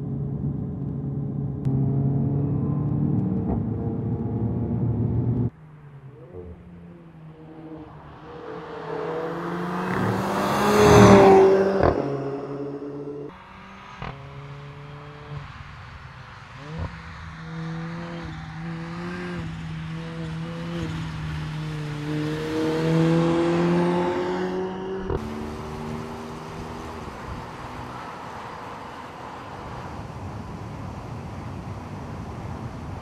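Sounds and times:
car engine accelerating: 0.0 - 32.3.

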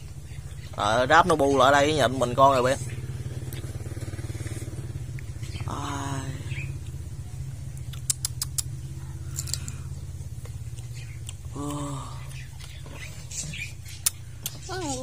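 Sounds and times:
motor idling hum: 0.0 - 15.0
hummed voice sounds: 5.6 - 6.7, 11.4 - 12.5
sharp clicks: 7.7 - 9.8.

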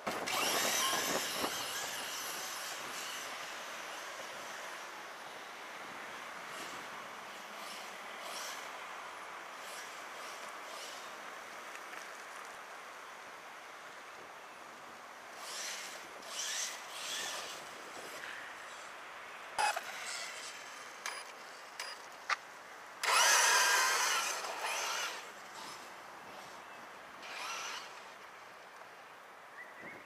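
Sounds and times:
electric motor whining: 0.1 - 3.6, 23.0 - 25.9, 27.2 - 28.2.

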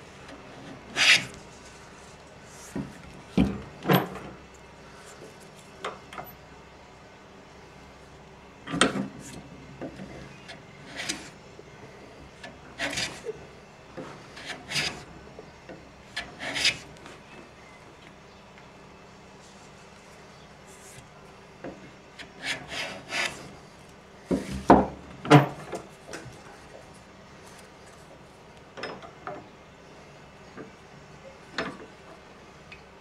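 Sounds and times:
wood being sanded by hand: 22.3 - 23.5.

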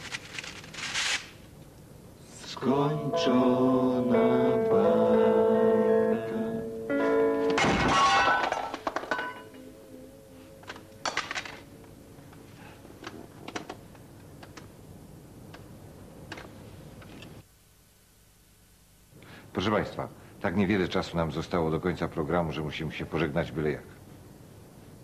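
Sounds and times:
man singing: 2.3 - 6.8
guitar: 2.3 - 13.2
loud ringing crash: 6.9 - 11.8.

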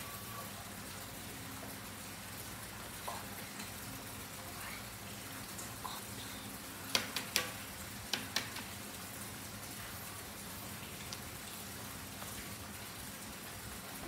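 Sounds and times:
pencil tapping on paper: 6.9 - 8.7.

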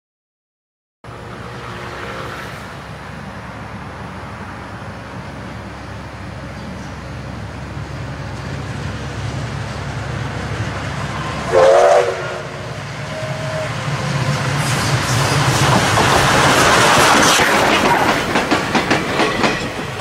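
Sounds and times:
train wheels rumbling: 1.1 - 20.0
steam locomotive whistle blast: 11.2 - 13.8.

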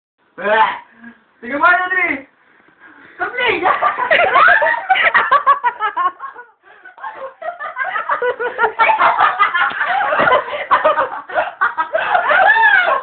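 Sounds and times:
people laughing: 3.6 - 13.0.

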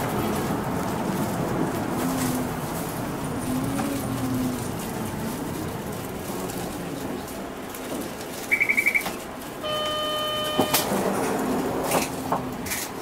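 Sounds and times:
bus cabin noise: 0.0 - 13.0
electronic beeps: 8.5 - 10.9
buzzer tone: 8.6 - 10.9.

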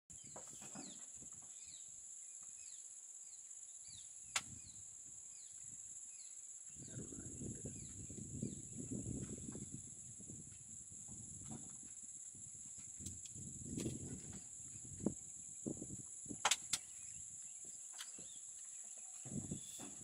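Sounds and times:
bird chirping: 0.1 - 9.6, 16.6 - 20.0.

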